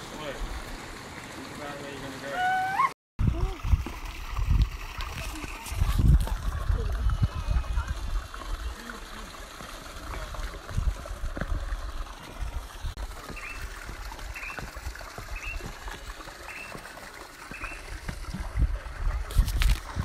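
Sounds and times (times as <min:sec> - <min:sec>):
water running over rocks: 0:00.0 - 0:20.0
bird chirping: 0:13.4 - 0:13.6, 0:14.4 - 0:14.6, 0:15.4 - 0:15.7, 0:16.5 - 0:16.8, 0:17.5 - 0:17.8.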